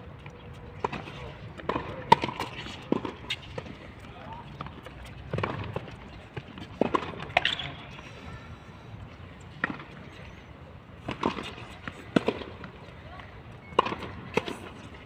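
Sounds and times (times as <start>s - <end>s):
racket hitting tennis ball: 0.8s - 3.7s, 11.0s - 12.7s, 13.7s - 15.0s
tennis ball bouncing: 0.8s - 3.8s, 4.5s - 7.7s, 9.5s - 10.1s, 11.0s - 13.0s, 13.6s - 15.0s.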